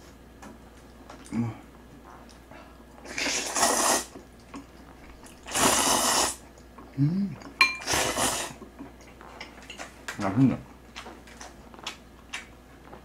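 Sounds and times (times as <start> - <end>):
noodles being slurped: 3.0 - 4.2, 5.3 - 6.4, 7.8 - 8.7.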